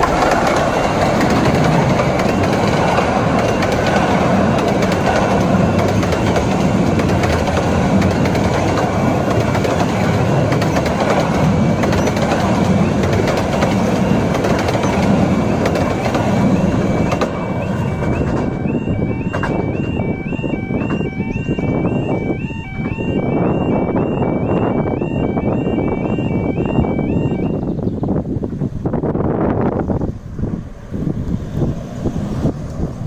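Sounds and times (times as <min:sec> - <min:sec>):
two-tone warning alarm: 0:00.0 - 0:08.3, 0:12.6 - 0:27.7
wheels clicking over rail joints: 0:00.0 - 0:19.9
train rumbling and clattering: 0:00.0 - 0:33.0.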